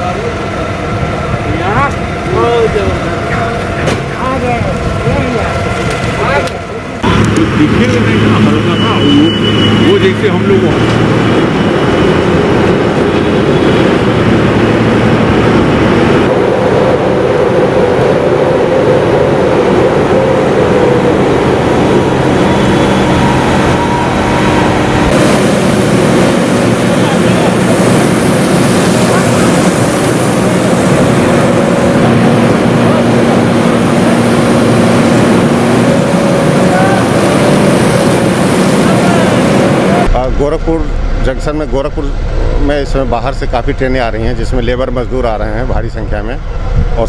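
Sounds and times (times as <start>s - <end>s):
fire truck engine and pump droning: 0.0s - 47.0s
hose jet spraying: 25.0s - 40.0s.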